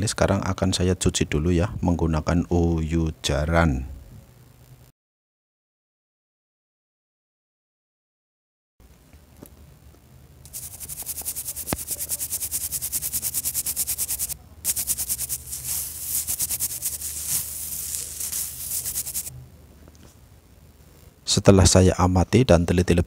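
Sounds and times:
brush scrubbing circuit board: 0:10.5 - 0:19.3.

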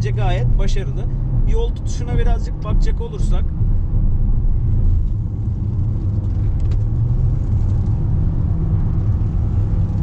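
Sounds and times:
car road and engine rumble: 0:00.0 - 0:10.0.

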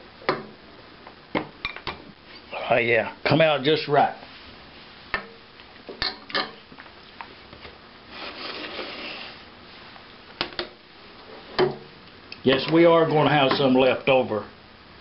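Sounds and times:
bowl scraping across metal tray: 0:08.1 - 0:09.5.

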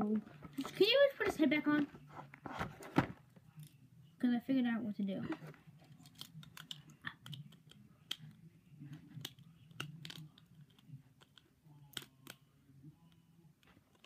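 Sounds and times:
plastic toy and packaging clicks: 0:05.9 - 0:08.4, 0:09.1 - 0:12.4.

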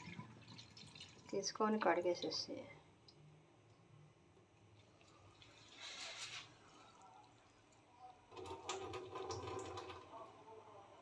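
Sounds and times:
water splashing into a steel sink: 0:00.0 - 0:01.6, 0:08.3 - 0:10.2.

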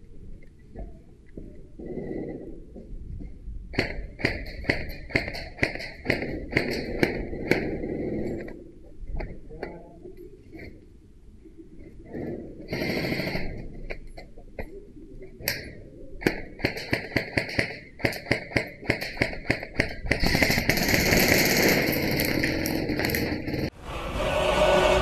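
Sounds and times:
rapid airsoft gun rattle and hiss: 0:18.8 - 0:23.6.

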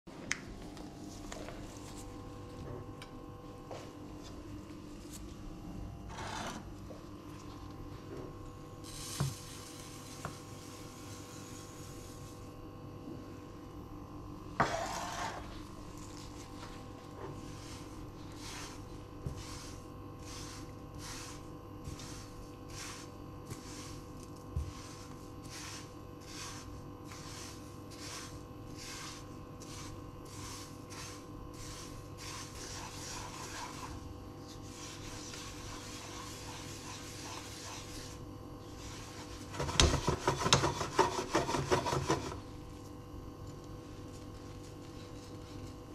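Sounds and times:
steady hum: 0:00.1 - 0:45.9
spatula scraping seeds in pan: 0:08.8 - 0:12.6, 0:14.6 - 0:42.5.

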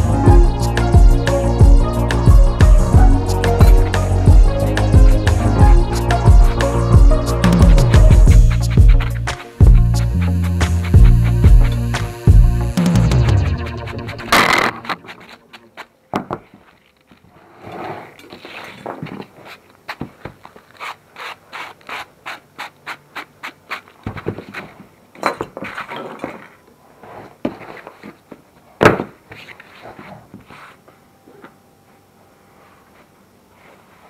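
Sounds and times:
scratchy hand sanding: 0:08.3 - 0:15.6.

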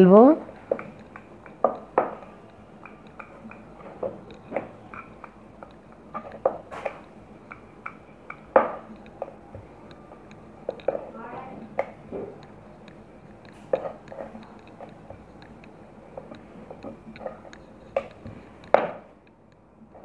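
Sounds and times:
rolling pin rolling dough: 0:00.0 - 0:19.2
rolling pin knocking on board: 0:00.7 - 0:05.1, 0:07.8 - 0:08.9.

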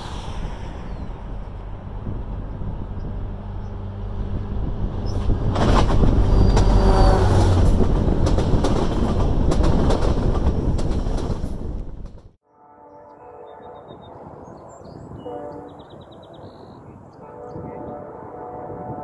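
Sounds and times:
diesel locomotive engine hum: 0:00.0 - 0:12.4
train wheels clattering on rails: 0:04.9 - 0:12.4.

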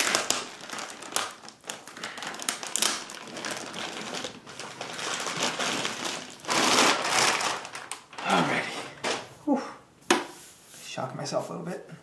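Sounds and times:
plastic bag crinkling and rustling: 0:00.0 - 0:09.4.

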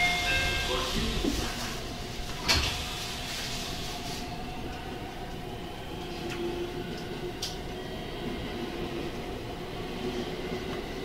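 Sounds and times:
train hum and rumble: 0:00.0 - 0:11.0.

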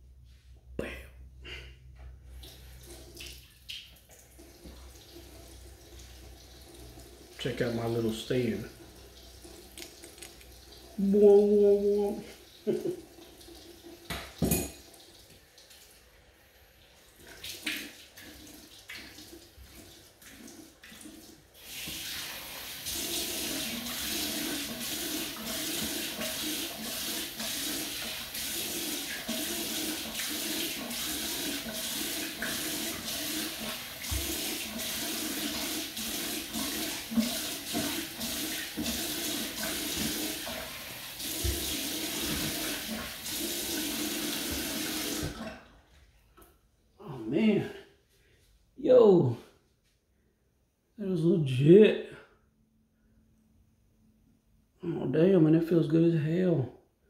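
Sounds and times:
faucet running into sink: 0:02.3 - 0:16.0, 0:17.0 - 0:45.7.

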